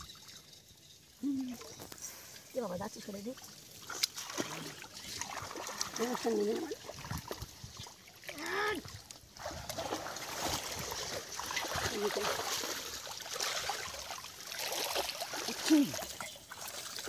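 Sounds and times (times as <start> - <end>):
muddy water splashing: 1.3 - 17.0
person calling out: 8.3 - 8.9, 15.5 - 16.0.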